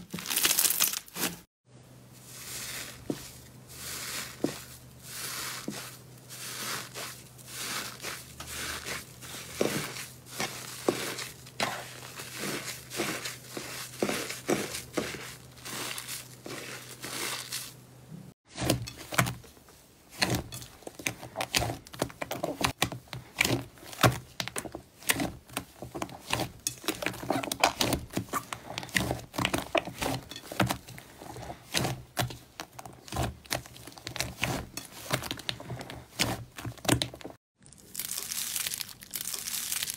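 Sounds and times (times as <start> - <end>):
slime crackling and popping: 0.1 - 1.2, 33.0 - 39.9
thick slime squishing: 2.2 - 17.8, 20.1 - 39.9.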